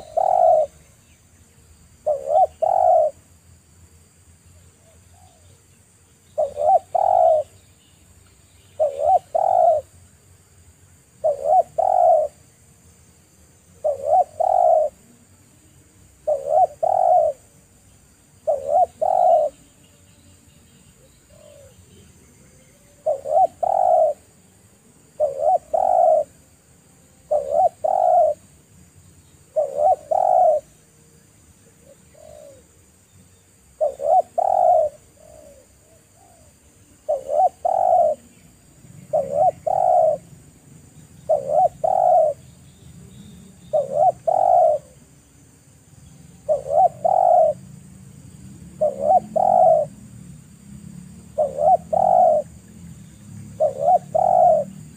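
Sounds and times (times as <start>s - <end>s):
dove cooing: 0.0s - 0.8s, 2.0s - 3.3s, 6.4s - 7.6s, 8.8s - 9.9s, 11.2s - 12.4s, 13.8s - 15.3s, 16.1s - 17.6s, 18.4s - 19.6s, 21.0s - 24.4s, 25.0s - 26.6s, 27.2s - 28.5s, 29.4s - 30.8s, 31.6s - 32.8s, 33.7s - 42.4s, 43.6s - 45.1s, 46.4s - 47.7s, 48.7s - 50.0s, 51.3s - 52.7s, 53.4s - 54.9s.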